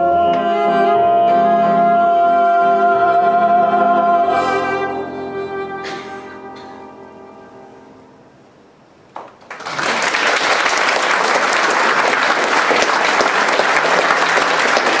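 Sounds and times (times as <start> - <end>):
audience applause: 9.2 - 15.0.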